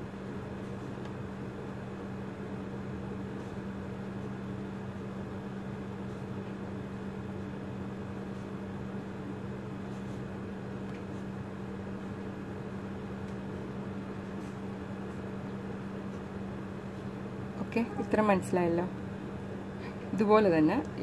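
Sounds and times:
steady machine hum: 0:00.0 - 0:21.0.

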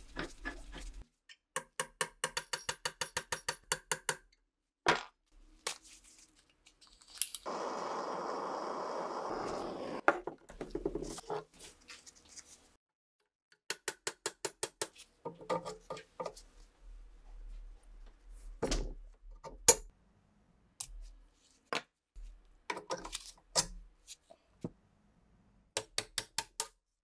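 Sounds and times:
gas torch flame hissing: 0:07.4 - 0:10.1.

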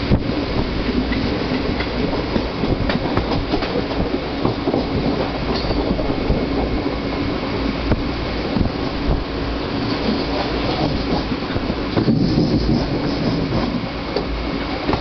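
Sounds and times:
train wheels rumbling on track: 0:00.0 - 0:15.0.

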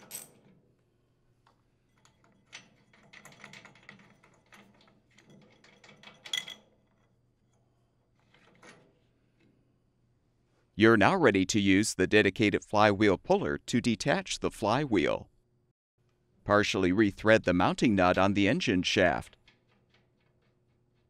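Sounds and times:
metal clicks and rattles: 0:01.4 - 0:07.6, 0:19.2 - 0:21.0.

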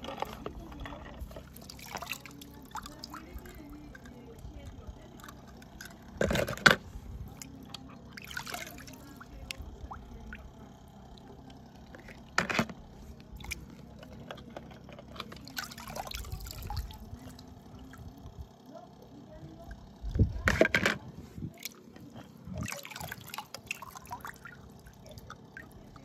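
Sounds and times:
water sloshing and trickling: 0:00.0 - 0:26.0
sharp splashes: 0:08.1 - 0:10.5.

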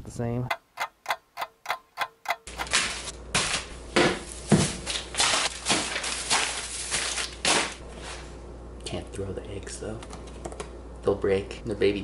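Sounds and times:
plastic bags crinkling: 0:04.3 - 0:07.8.

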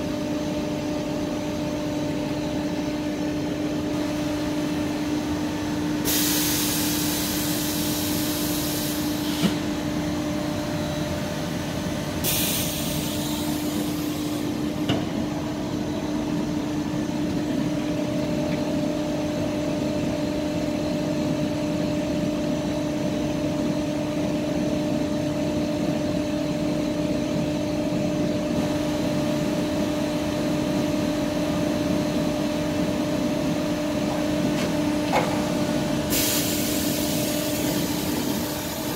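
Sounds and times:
compressed air hiss: 0:06.0 - 0:09.6, 0:12.2 - 0:14.4, 0:36.1 - 0:38.9.

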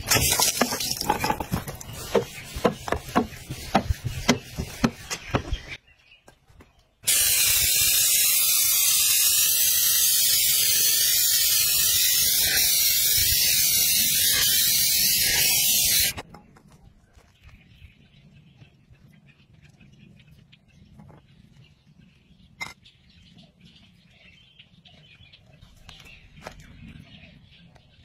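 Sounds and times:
aerosol spray can hissing: 0:07.1 - 0:16.2.

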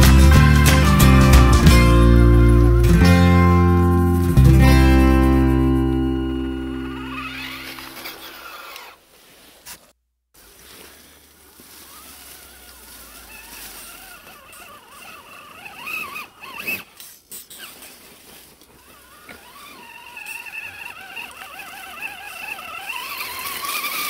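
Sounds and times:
rc truck motor whining: 0:05.1 - 0:09.0, 0:11.8 - 0:24.0.

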